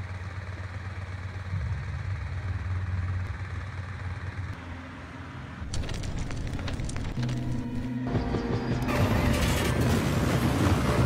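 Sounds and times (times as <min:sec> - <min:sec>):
steady low rumble: 0:01.2 - 0:04.6.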